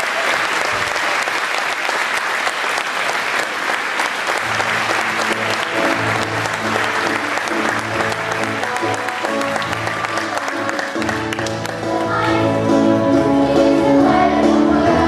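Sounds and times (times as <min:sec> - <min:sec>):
audience applauding: 0:00.0 - 0:12.1
instrumental music: 0:04.5 - 0:15.0.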